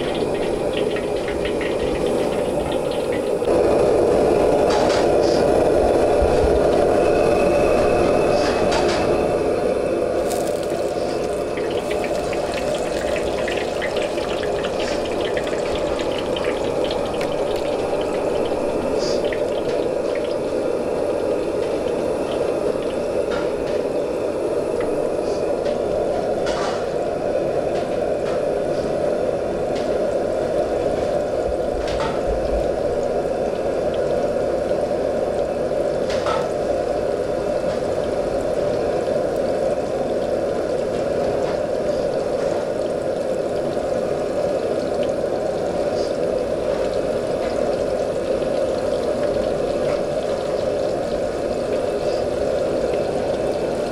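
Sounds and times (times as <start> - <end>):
food deep-frying in hot oil: 0.0 - 53.9.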